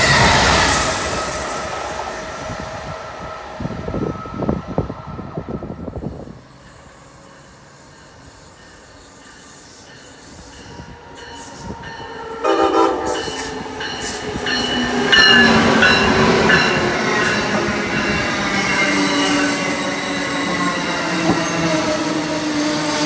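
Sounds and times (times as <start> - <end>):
train rail rumble: 0.0 - 23.0
train horn: 12.4 - 13.6.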